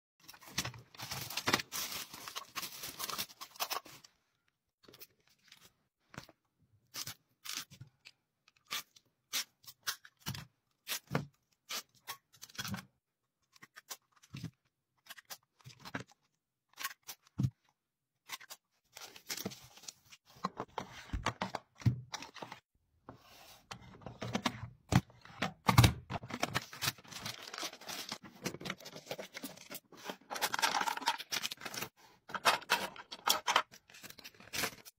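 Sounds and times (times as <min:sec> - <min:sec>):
plastic packaging rustling: 0:00.3 - 0:04.1, 0:26.2 - 0:34.9.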